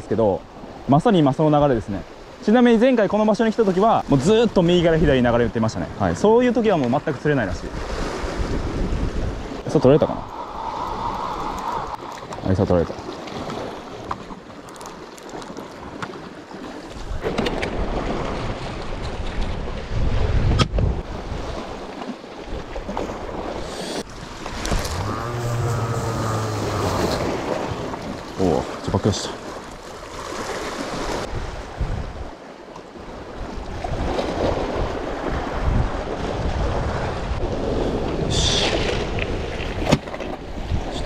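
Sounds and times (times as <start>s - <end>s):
sea waves washing against rocks: 7.1s - 20.1s, 21.0s - 32.2s
wind buffeting microphone: 7.6s - 14.2s, 22.5s - 28.8s, 30.9s - 32.4s, 33.3s - 41.0s.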